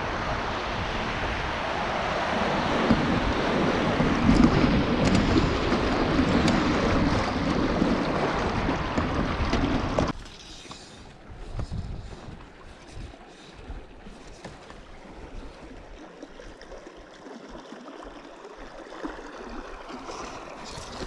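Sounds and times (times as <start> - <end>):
river rapids rushing: 0.0 - 9.4
wind buffeting microphone: 0.0 - 10.2, 11.0 - 16.0.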